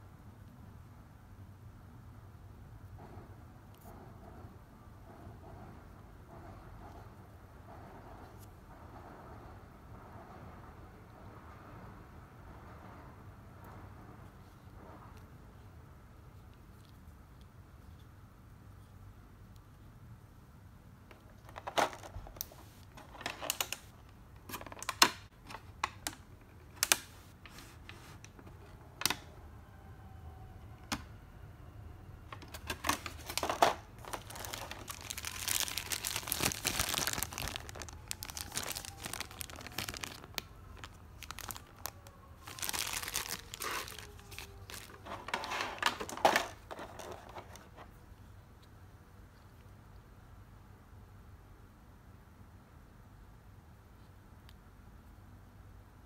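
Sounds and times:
plastic crinkling: 21.4 - 25.2, 32.4 - 47.8.

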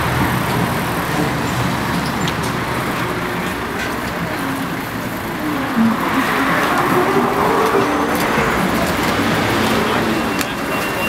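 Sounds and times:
car driving past: 4.6 - 10.3.

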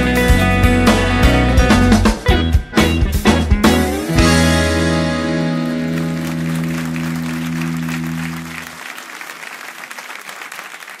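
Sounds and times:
live band chord on accordion and guitar: 0.0 - 8.7
audience applauding: 5.2 - 11.0.

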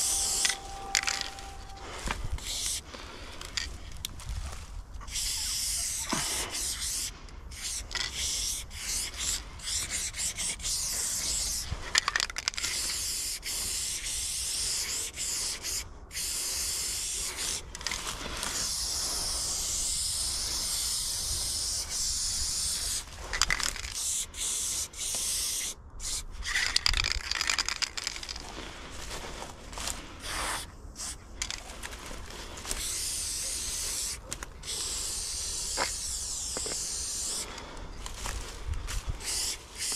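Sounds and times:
spray-paint can hissing: 0.0 - 2.8, 5.1 - 11.7, 12.6 - 17.6, 18.5 - 26.7, 32.8 - 37.5, 39.2 - 39.9.

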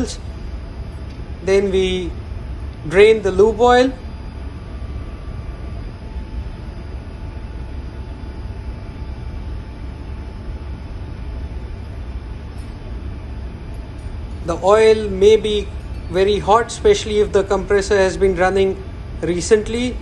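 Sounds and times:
engine-room machinery rumble: 0.0 - 20.0
faint steady whine: 0.0 - 20.0.

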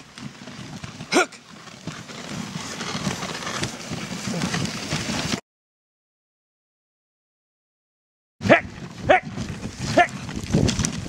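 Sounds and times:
dog paws pattering on snow: 0.0 - 5.4.

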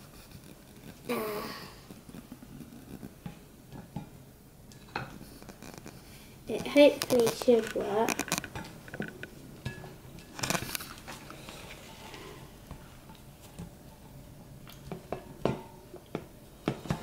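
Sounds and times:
plastic bottle scraping glass bowl: 6.5 - 8.5.

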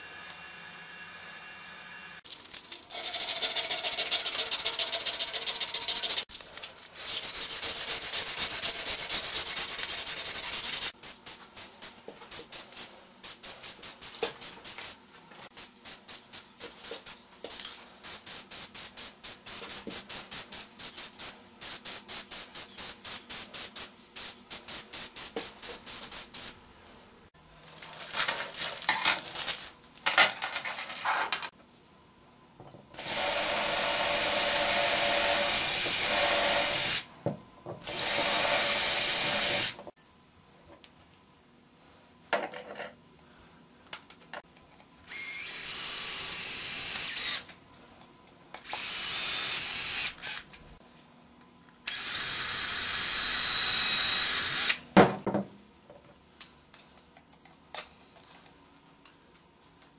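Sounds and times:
cordless drill running: 33.0 - 37.1, 37.9 - 39.8, 45.1 - 47.4, 48.7 - 50.4, 51.9 - 54.8.

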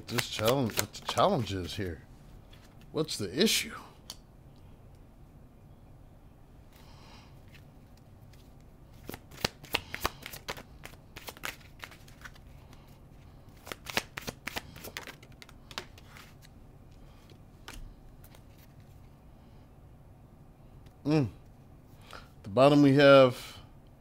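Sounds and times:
cards being shuffled: 0.0 - 2.9, 7.4 - 16.5, 17.2 - 19.0.

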